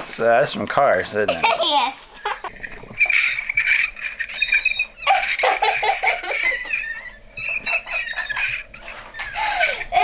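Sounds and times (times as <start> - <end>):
child giggling: 1.3 - 2.5, 5.0 - 10.0.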